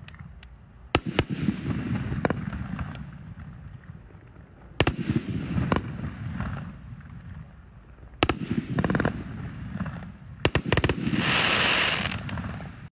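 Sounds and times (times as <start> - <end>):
fireworks bangs: 0.0 - 12.9
loud hiss: 10.5 - 12.3.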